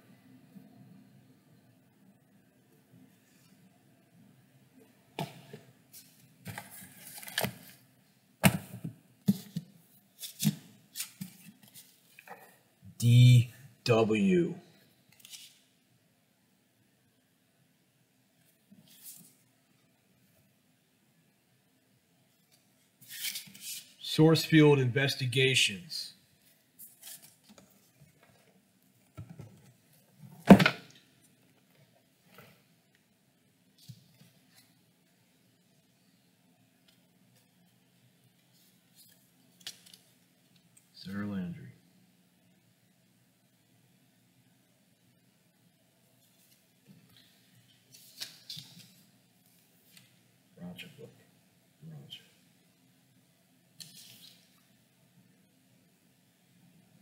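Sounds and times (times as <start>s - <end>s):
books knocking and scraping: 8.4s - 9.7s, 30.3s - 30.9s.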